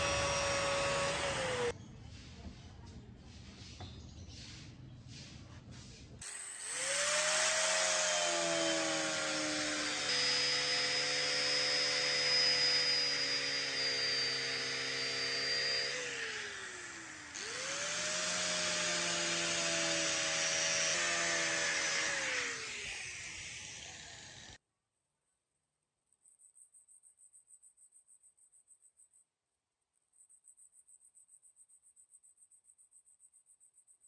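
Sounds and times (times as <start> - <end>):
angle grinder whining: 0.0 - 1.7, 6.2 - 24.6.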